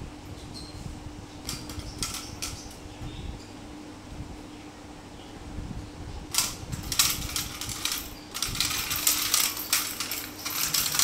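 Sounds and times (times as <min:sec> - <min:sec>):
toy clicking and rattling on floor: 0:01.4 - 0:02.8, 0:06.3 - 0:11.0.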